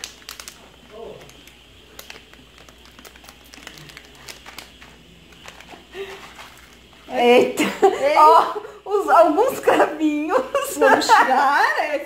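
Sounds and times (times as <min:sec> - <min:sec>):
plastic packet crinkling: 0:00.0 - 0:07.1.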